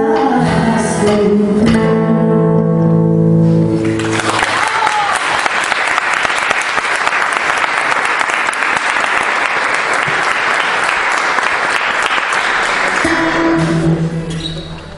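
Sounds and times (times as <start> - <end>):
audience applauding: 3.8 - 13.6.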